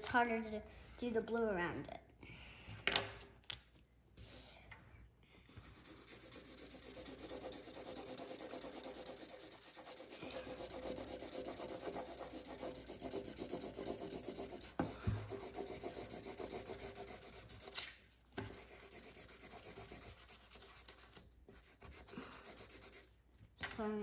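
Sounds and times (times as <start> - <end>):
marker scribbling on paper: 5.5 - 17.8, 18.4 - 23.2.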